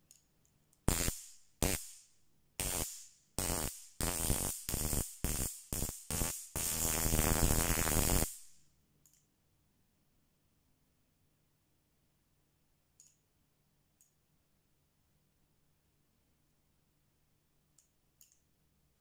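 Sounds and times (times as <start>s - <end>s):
stun gun electric zaps: 0.9s - 2.0s, 2.6s - 8.6s.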